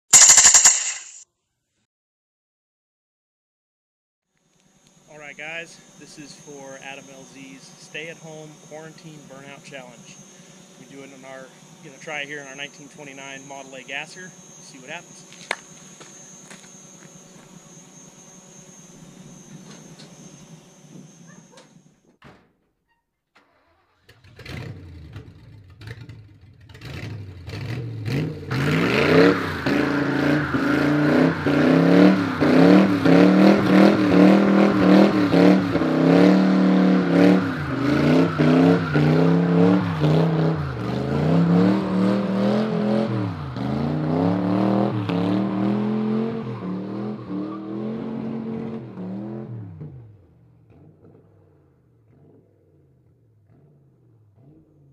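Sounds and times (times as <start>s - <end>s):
car engine revving: 23.7s - 54.9s.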